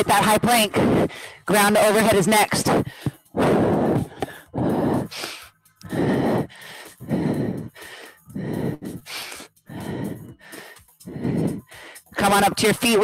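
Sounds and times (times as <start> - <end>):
woman breathing hard: 0.7 - 1.5, 2.7 - 12.2.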